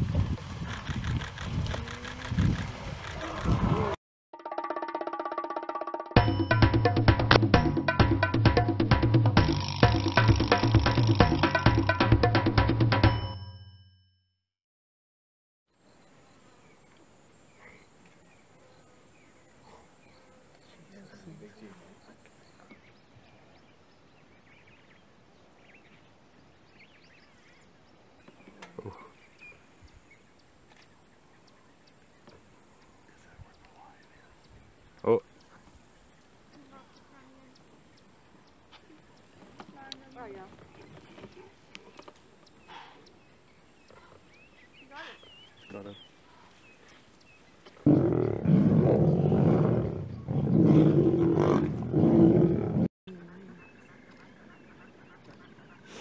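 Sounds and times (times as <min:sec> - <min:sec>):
bird chirps: 0:16.0 - 0:47.8
lions growling: 0:47.8 - 0:52.9.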